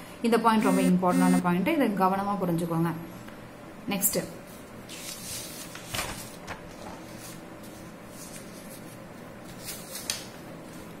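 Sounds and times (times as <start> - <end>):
faint room hum: 0.0 - 11.0
page turning: 4.9 - 10.8
paper rustling: 4.9 - 10.9.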